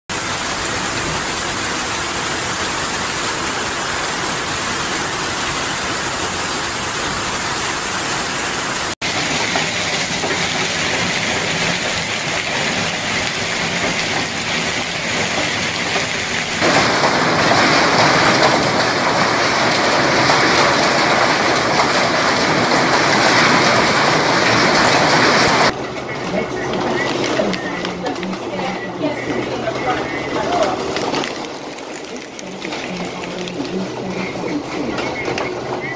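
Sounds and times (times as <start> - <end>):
hail pelting down: 9.0 - 35.9.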